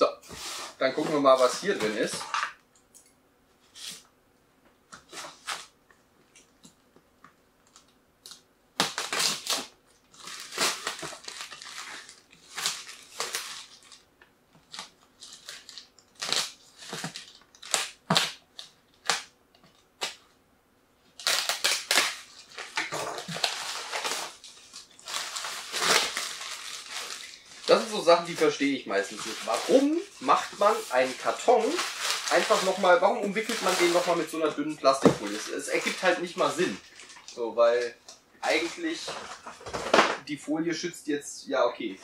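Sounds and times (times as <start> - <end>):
crinkling plastic film and cardboard: 8.8 - 20.3, 21.1 - 40.2.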